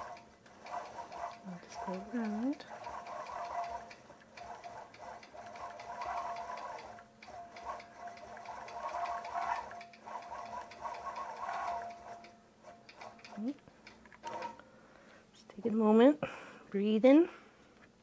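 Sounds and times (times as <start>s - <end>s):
quilting machine motor whine: 0.0s - 13.5s
rapid needle ticking: 0.0s - 14.6s.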